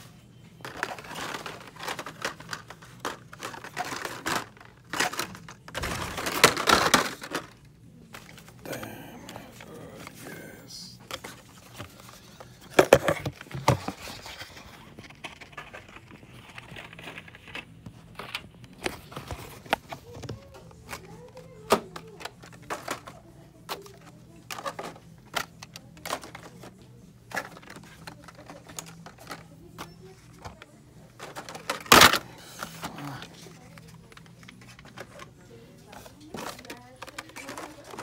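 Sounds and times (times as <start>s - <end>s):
plastic packages clicking on metal pegs: 36.2s - 38.0s.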